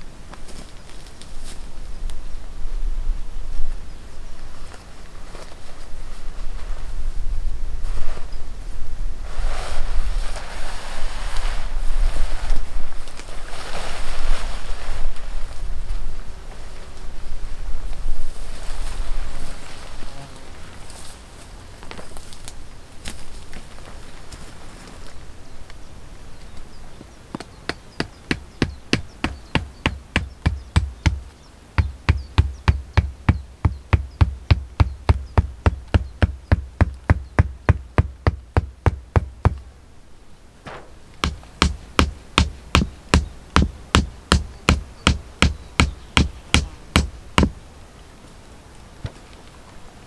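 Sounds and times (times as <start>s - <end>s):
hatchet knocking stakes into ground: 40.7s - 47.6s.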